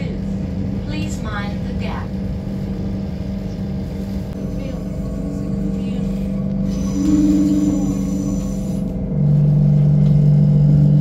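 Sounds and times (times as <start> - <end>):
lower hum: 0.0 - 11.0
train traction motors humming: 0.0 - 11.0.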